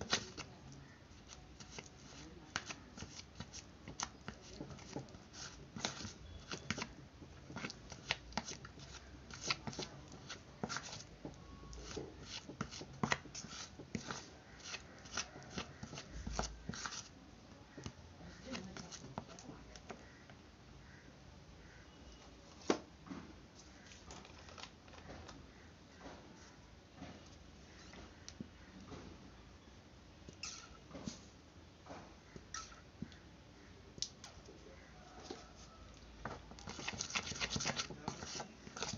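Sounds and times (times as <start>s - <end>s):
metal spoon stirring paste in bowl: 0.0s - 17.2s, 30.3s - 30.8s, 32.3s - 33.2s, 36.3s - 38.9s.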